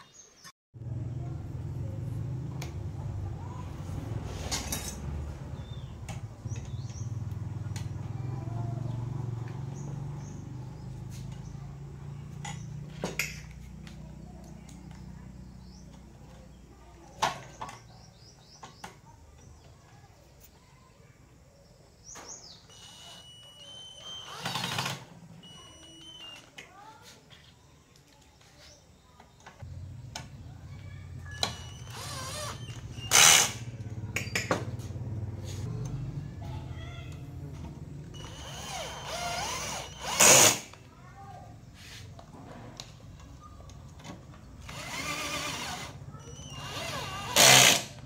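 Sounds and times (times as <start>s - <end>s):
birds chirping: 0.0s - 2.0s, 5.4s - 40.2s, 40.9s - 47.4s
cordless drill driving screw: 22.7s - 26.4s, 31.3s - 33.6s, 38.2s - 40.8s, 44.6s - 48.0s.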